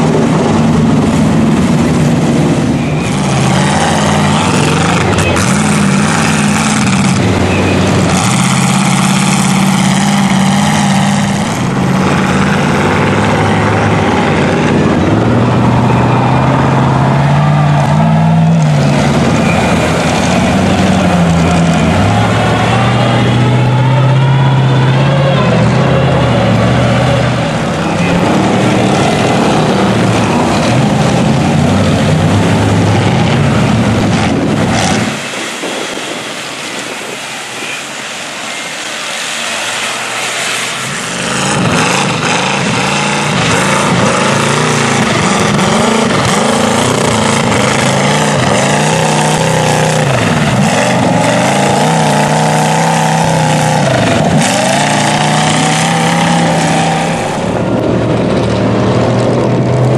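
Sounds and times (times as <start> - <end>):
truck engine revving hard: 0.0 - 59.9
truck engine running loudly: 0.0 - 59.9.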